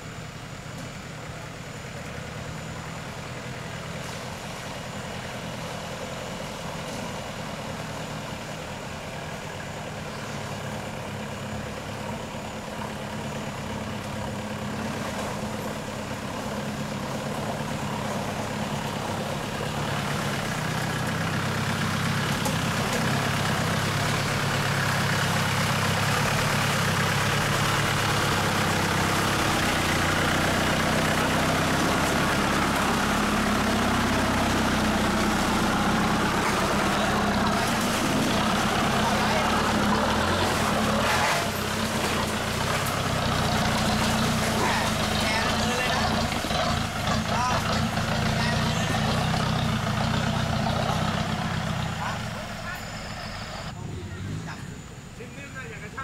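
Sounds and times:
pickup truck engine running: 0:00.0 - 0:56.0
water splashing around tyres: 0:14.7 - 0:52.3.

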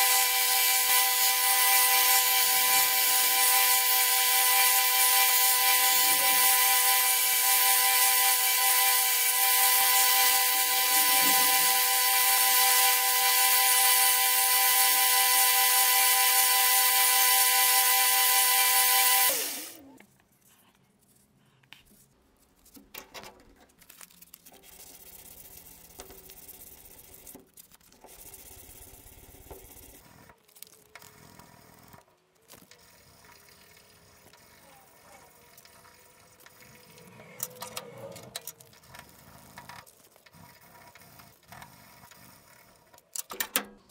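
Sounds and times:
hand sanding rubbing and scraping: 0:00.0 - 0:14.0
belt grinder whining: 0:00.0 - 0:19.9, 0:34.1 - 0:43.0.

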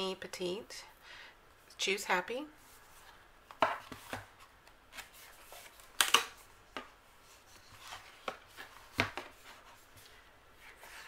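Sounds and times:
paper rustles and taps: 0:03.5 - 0:04.3, 0:07.7 - 0:09.6.

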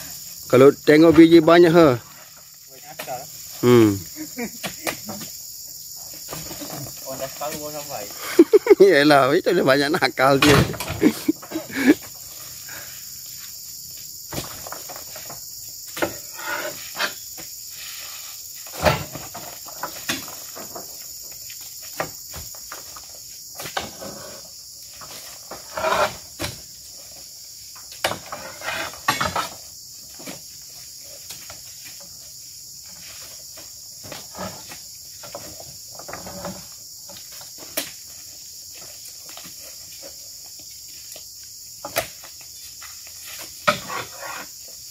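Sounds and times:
insects chorus: 0:00.0 - 0:44.9
fruit bunches thudding into wooden bed: 0:10.4 - 0:11.2, 0:18.7 - 0:20.9.

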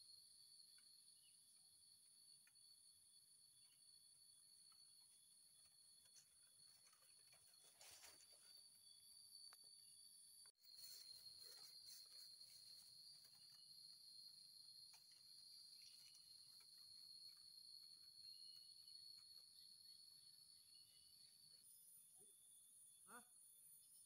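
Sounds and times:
insects buzzing: 0:00.0 - 0:24.0.

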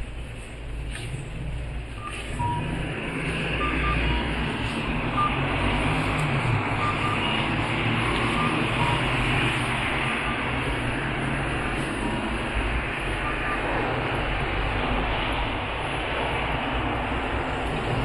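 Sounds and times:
short high electronic beeps: 0:02.0 - 0:02.7
vehicle passing close: 0:02.4 - 0:13.0.

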